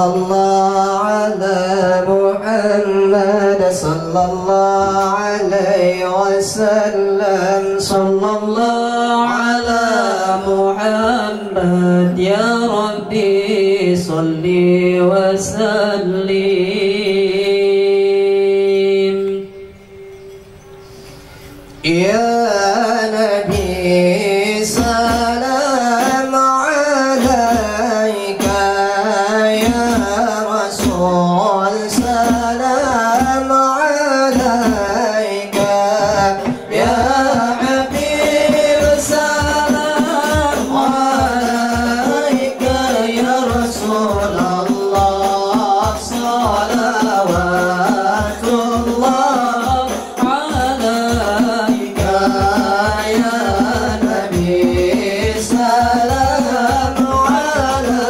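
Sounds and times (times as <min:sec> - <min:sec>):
men singing together: 0:00.0 - 0:19.5, 0:21.8 - 0:58.0
frame drums beating: 0:03.8 - 0:05.8, 0:22.8 - 0:58.0.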